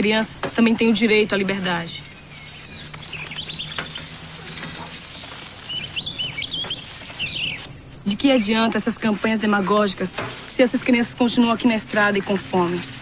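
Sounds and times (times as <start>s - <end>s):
steady background hiss: 0.0s - 13.0s
small bird chirping: 1.1s - 8.7s.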